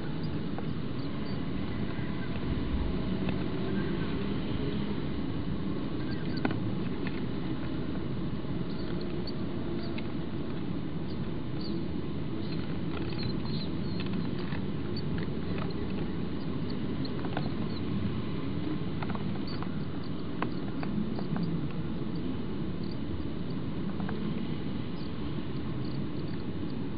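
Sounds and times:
steady low rumble: 0.0s - 26.9s
chicks squeaking: 1.0s - 2.4s, 6.0s - 6.5s, 8.7s - 10.0s, 11.1s - 11.8s, 12.4s - 17.9s, 19.4s - 22.2s, 22.8s - 23.0s
chicks scrabbling: 6.0s - 6.5s, 12.4s - 17.8s.

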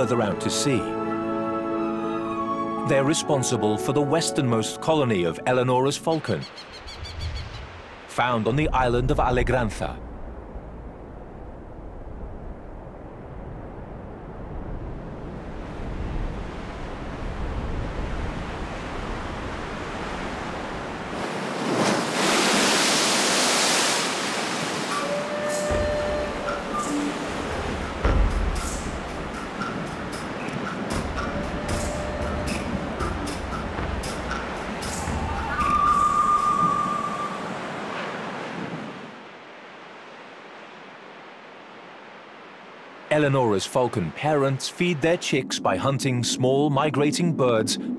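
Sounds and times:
sea surf: 0.0s - 47.9s
low wind rumble: 6.6s - 43.2s, 44.9s - 47.9s
sea wave crashing on rock: 21.1s - 29.5s
thin high whistle: 24.9s - 27.2s, 31.2s - 33.1s, 34.8s - 37.5s.

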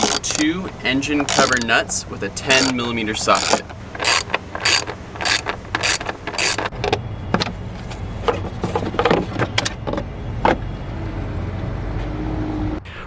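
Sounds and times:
ratchet wrench clicking: 0.0s - 1.8s, 2.4s - 6.7s
knocks and clunks: 8.2s - 10.6s.

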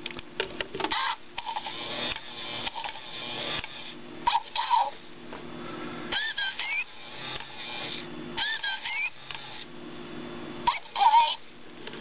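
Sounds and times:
small gear motors whirring: 0.9s - 5.1s, 6.1s - 9.7s, 10.7s - 11.5s
electronic bird chirps: 6.2s - 7.0s, 8.4s - 9.3s
gliding electronic whistles: 6.2s - 7.1s, 7.7s - 9.2s.

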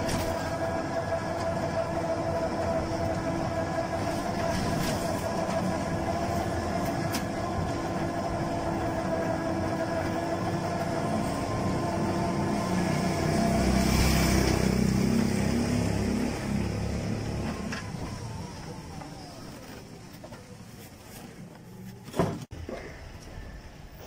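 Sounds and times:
electric motor whine: 0.0s - 19.8s
rolling road noise: 0.0s - 24.0s.

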